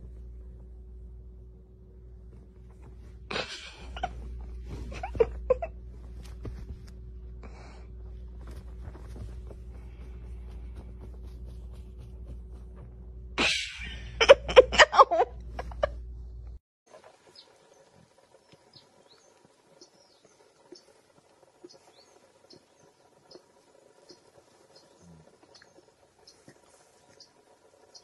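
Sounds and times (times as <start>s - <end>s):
faint clicks and high chirps: 16.9s - 28.0s.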